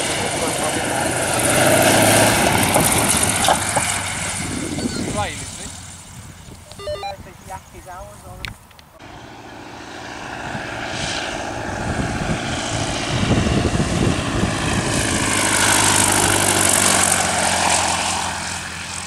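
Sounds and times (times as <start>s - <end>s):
light aircraft engine passing: 0.0s - 6.4s, 9.0s - 19.0s.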